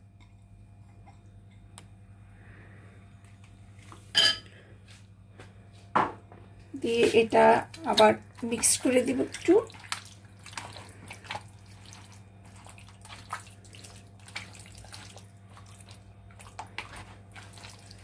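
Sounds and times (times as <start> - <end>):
steady low hum: 0.0 - 18.0
wet squelches of mixing meat: 6.8 - 18.0.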